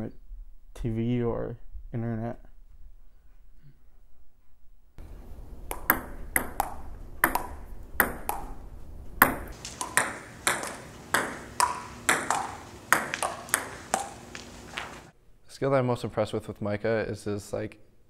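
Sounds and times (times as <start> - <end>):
table tennis ball hits: 5.6 - 8.6, 9.2 - 15.1.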